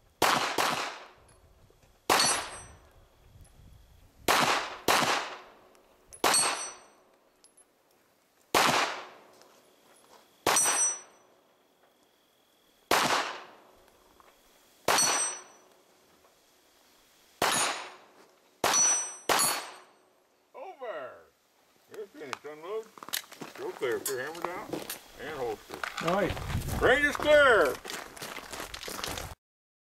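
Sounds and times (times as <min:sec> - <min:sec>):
steel plate target ringing: 0:02.1 - 0:02.8, 0:06.2 - 0:07.0, 0:10.5 - 0:11.3, 0:14.9 - 0:15.7, 0:18.6 - 0:20.0
handgun shots: 0:17.4 - 0:18.0, 0:18.6 - 0:19.8.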